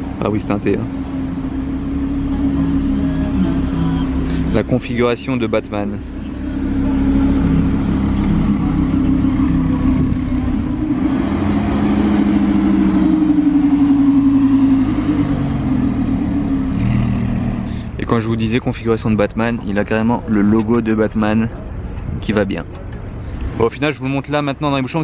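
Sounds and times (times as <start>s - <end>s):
car engine at low revs: 0.0s - 25.0s.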